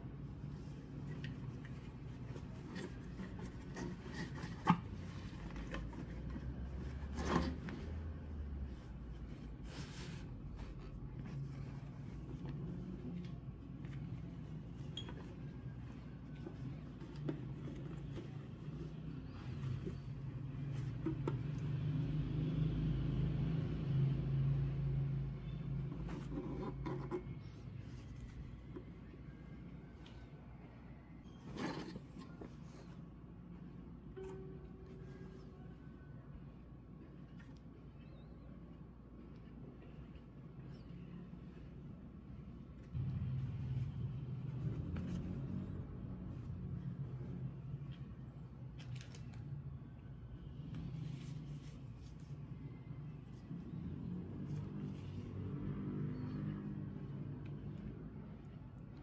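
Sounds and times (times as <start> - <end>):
vehicle engine hum: 10.3 - 29.8, 42.8 - 48.5, 50.0 - 59.0.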